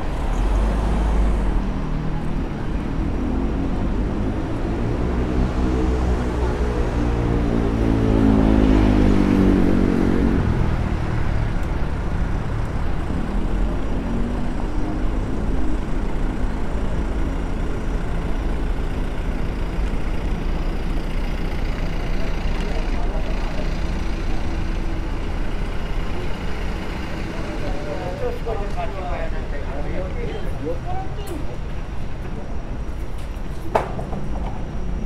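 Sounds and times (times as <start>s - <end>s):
traffic rumble: 0.0s - 35.0s
passers-by talking faintly: 13.0s - 35.0s.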